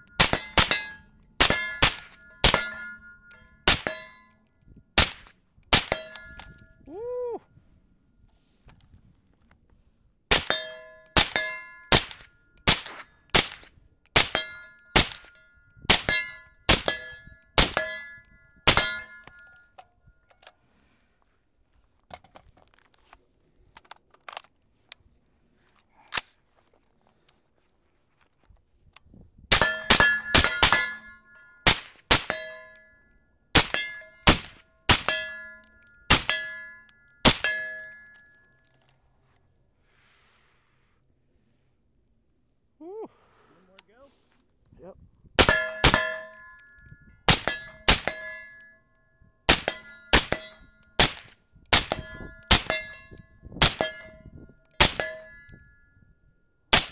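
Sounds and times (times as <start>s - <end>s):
steel plate ringing clang: 0.0s - 4.4s, 5.8s - 6.8s, 10.3s - 13.5s, 14.2s - 19.7s, 29.5s - 38.4s, 45.4s - 48.8s, 49.5s - 56.1s
suppressed rifle shots: 3.7s - 4.0s, 5.0s - 6.2s, 11.2s - 15.3s, 33.6s - 35.2s, 47.3s - 48.3s, 49.5s - 52.8s.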